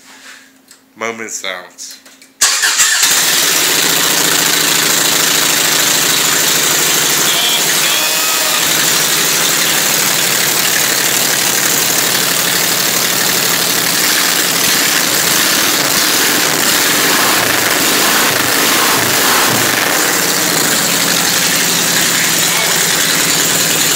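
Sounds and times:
engine running loudly: 0:02.8 - 0:23.9
strong hiss: 0:14.1 - 0:23.1.

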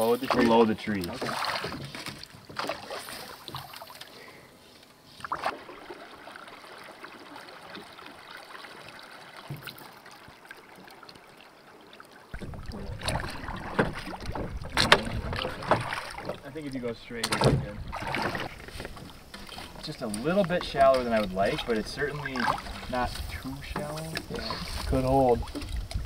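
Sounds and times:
faint water sounds: 0:00.0 - 0:26.0
oars knocking on boat: 0:12.4 - 0:16.5.

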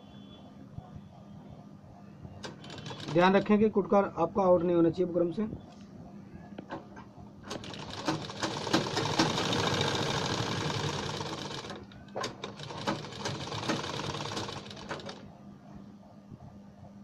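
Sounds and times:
sewing machine stitching: 0:02.4 - 0:03.5, 0:07.5 - 0:15.2.

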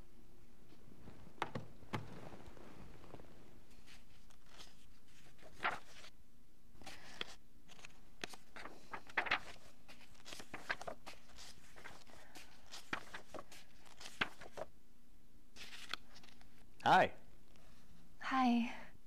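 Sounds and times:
soft taps and rustles: 0:00.7 - 0:04.4.

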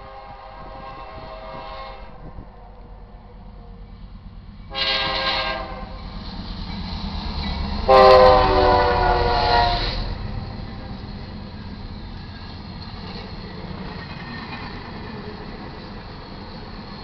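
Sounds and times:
locomotive air horn blasts: 0:00.0 - 0:02.4, 0:04.7 - 0:06.0, 0:07.9 - 0:10.2
locomotive engine rumble: 0:00.0 - 0:17.0.

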